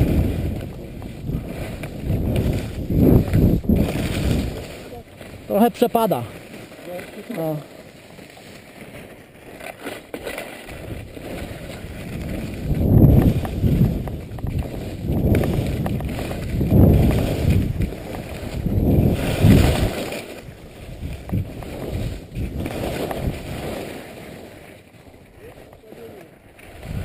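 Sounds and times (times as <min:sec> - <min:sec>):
wind rushing over microphone: 0:00.0 - 0:06.4, 0:10.7 - 0:23.9, 0:26.7 - 0:27.0
skis scraping on snow: 0:00.0 - 0:27.0.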